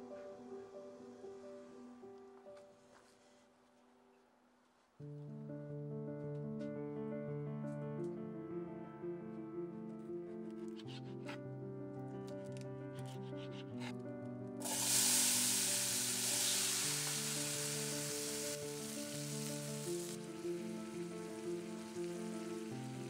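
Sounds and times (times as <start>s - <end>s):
tomatoes sizzling in hot oil: 14.6s - 23.0s.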